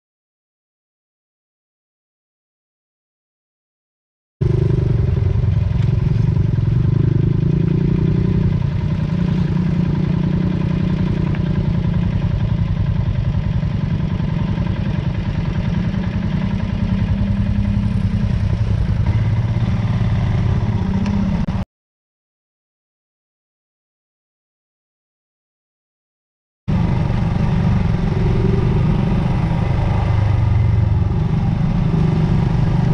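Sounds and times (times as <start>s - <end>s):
motorcycle engine running: 4.4s - 21.6s, 26.7s - 32.9s.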